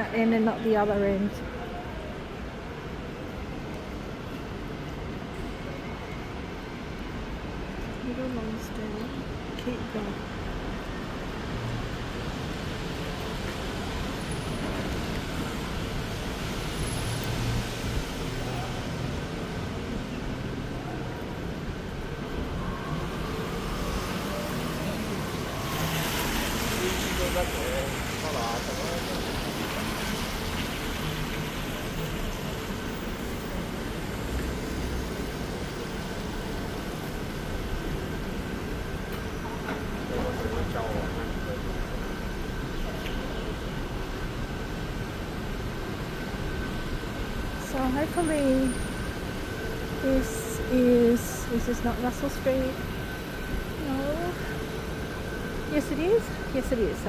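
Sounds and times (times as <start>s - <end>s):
road vehicles passing: 0.0s - 57.0s.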